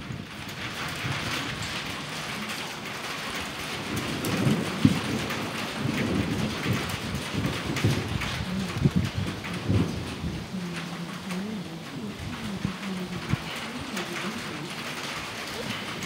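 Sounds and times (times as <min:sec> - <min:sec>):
steady rain: 0:00.0 - 0:16.0
thunder rumbling: 0:00.0 - 0:16.0.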